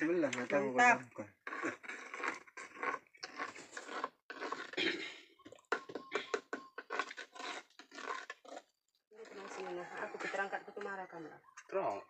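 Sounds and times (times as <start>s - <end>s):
metal spoon scraping clay pot: 0.3s - 12.0s.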